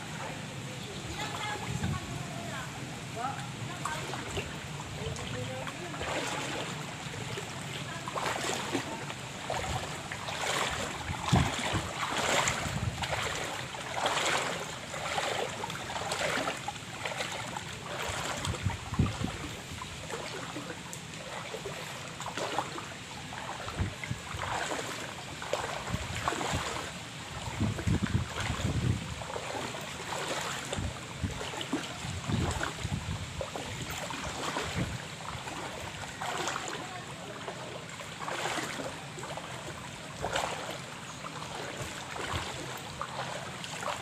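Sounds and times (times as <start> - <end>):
floodwater sloshing while wading: 0.0 - 44.0
wind buffeting microphone: 1.0 - 2.8, 8.2 - 20.3, 23.5 - 35.9.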